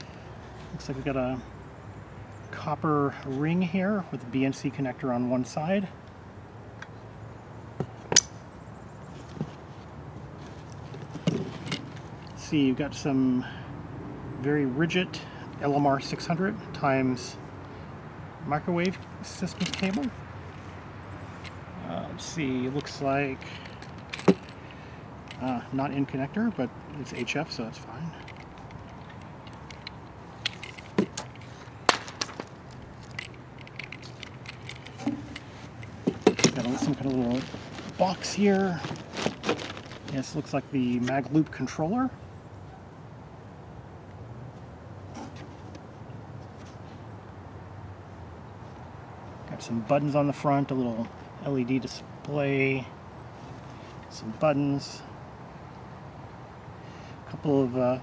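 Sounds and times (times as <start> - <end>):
cable handling clicks and clinks: 10.6 - 12.4, 18.8 - 20.2, 22.2 - 41.6.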